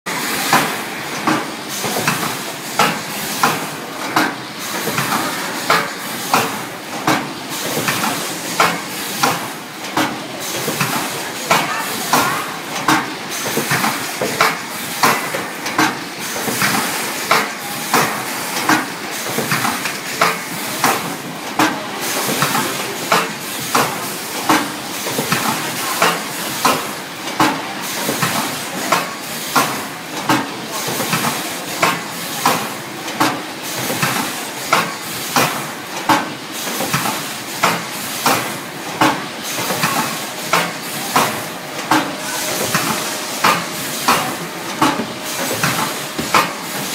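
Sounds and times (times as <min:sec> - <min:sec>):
machine clacking: 0:00.4 - 0:46.9
steady machine hiss: 0:30.7 - 0:46.9.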